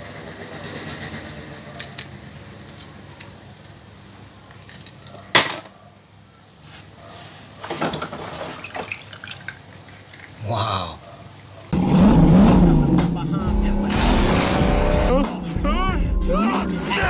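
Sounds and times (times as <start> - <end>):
toy cars clattering: 1.7 - 3.8, 4.4 - 5.8.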